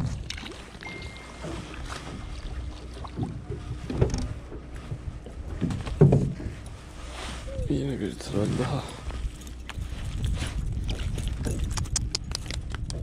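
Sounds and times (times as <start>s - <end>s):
small boat rumble: 0.0s - 13.0s
knocks and thumps aboard: 3.1s - 6.7s.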